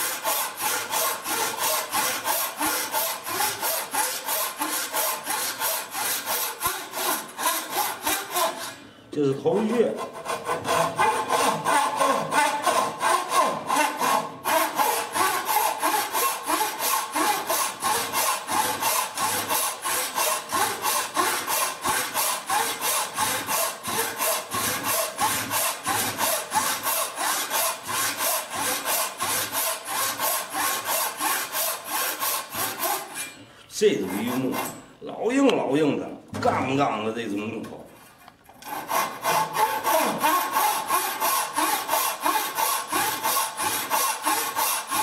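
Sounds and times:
frame saw cutting wood: 0:00.0 - 0:08.8, 0:09.5 - 0:34.9, 0:38.6 - 0:45.0.

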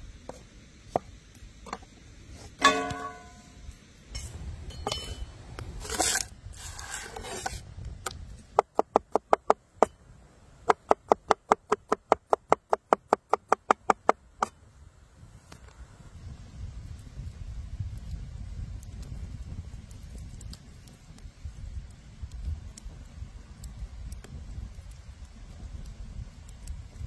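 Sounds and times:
scraping and rubbing: 0:05.8 - 0:07.7.

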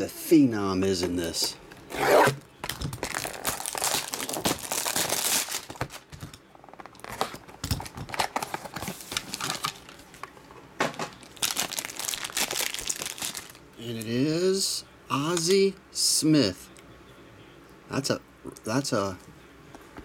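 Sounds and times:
plastic wrap crinkling: 0:02.7 - 0:10.2, 0:11.1 - 0:14.1.

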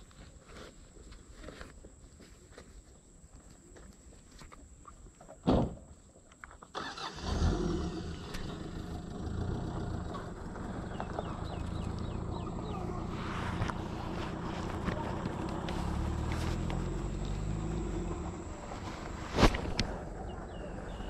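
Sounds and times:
vehicle engine starting and idling: 0:06.7 - 0:21.0.

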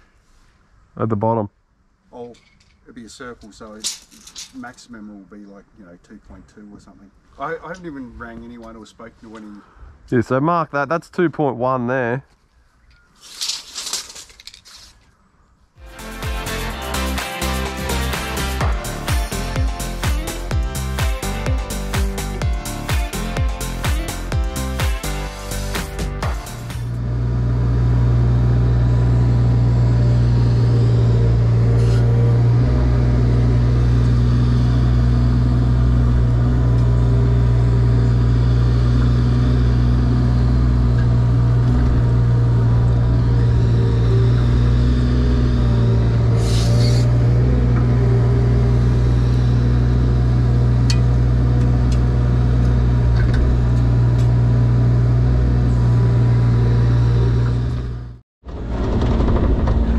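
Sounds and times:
diesel engine running: 0:15.8 - 0:59.9.

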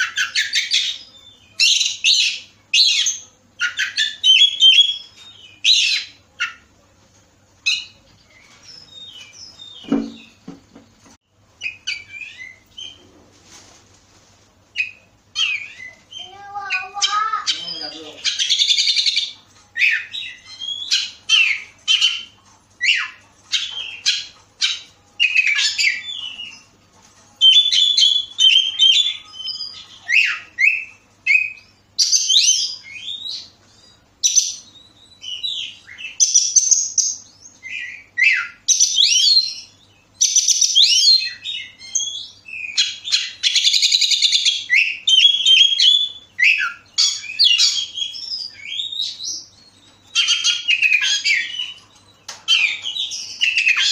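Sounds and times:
bird singing whistled phrases: 0:34.3 - 0:51.8.

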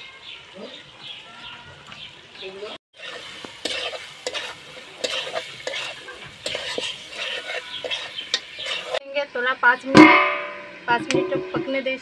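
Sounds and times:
food sizzling: 0:02.9 - 0:12.0
metal spatula scraping iron pan: 0:03.0 - 0:09.0.

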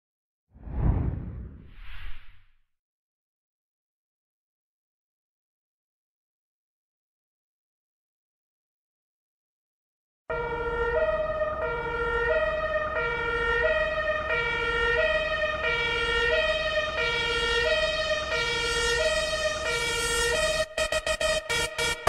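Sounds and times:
two-tone police siren: 0:10.3 - 0:22.0.

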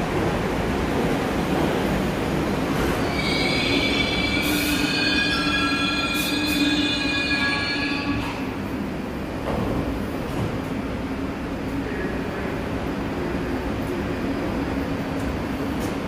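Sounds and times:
train running noise: 0:00.0 - 0:16.0
subway train brakes squealing: 0:02.7 - 0:08.7.

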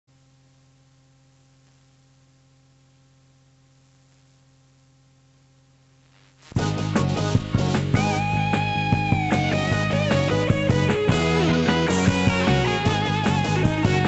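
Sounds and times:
faint electrical hum: 0:00.1 - 0:06.6
band accompaniment music: 0:06.6 - 0:14.0.

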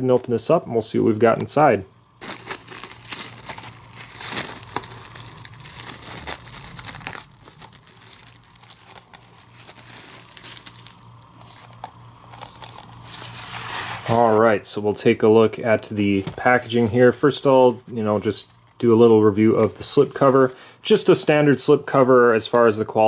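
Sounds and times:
plastic wrap tearing and crinkling: 0:02.2 - 0:14.4.

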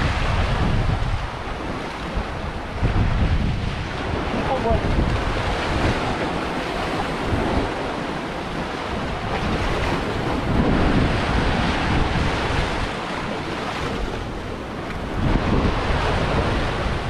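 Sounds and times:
sea surf washing: 0:00.0 - 0:17.0
wind buffeting microphone: 0:00.0 - 0:17.0.

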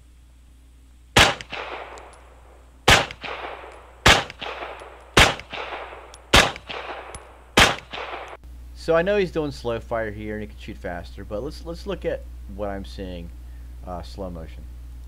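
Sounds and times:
pistol shots with echo: 0:01.2 - 0:02.3, 0:02.9 - 0:08.4.

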